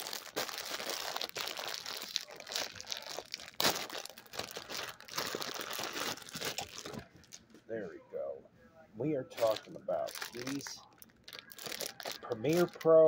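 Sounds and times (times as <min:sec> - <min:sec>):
plastic packaging crinkling: 0:00.0 - 0:07.5, 0:09.4 - 0:13.0.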